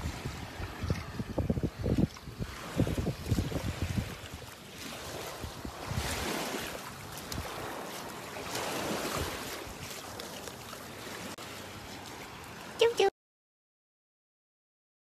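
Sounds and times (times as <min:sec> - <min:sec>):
wind buffeting microphone: 0:00.0 - 0:09.9
small waves lapping on shore: 0:00.0 - 0:13.1.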